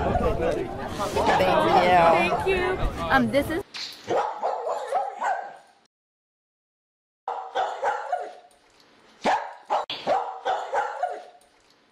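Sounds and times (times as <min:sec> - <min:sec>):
small dog yapping: 0:07.3 - 0:08.4, 0:09.2 - 0:11.4.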